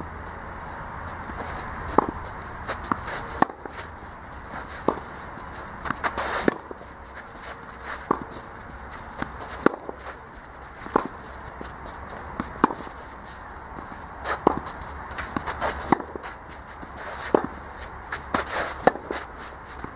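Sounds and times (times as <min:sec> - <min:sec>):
footsteps scuffing on clay: 0:00.0 - 0:19.9
racket hitting tennis ball: 0:00.0 - 0:19.9
ball bouncing: 0:00.3 - 0:13.0, 0:13.8 - 0:16.2.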